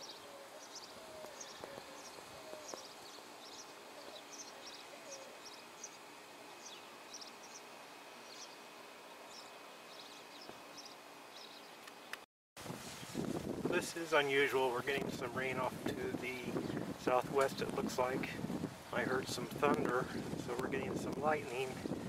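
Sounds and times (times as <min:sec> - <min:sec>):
low repeated bird call: 0:00.0 - 0:12.1
small birds chirping: 0:00.0 - 0:12.2, 0:16.4 - 0:22.0.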